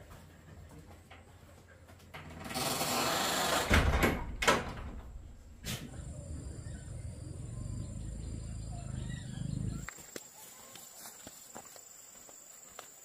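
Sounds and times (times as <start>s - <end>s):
door scraping: 2.2s - 5.8s.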